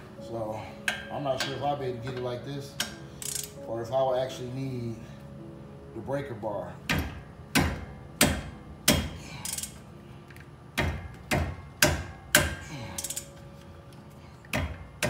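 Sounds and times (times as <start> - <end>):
socket ratchet clicking: 2.8 - 3.6, 9.0 - 10.5, 12.4 - 13.3.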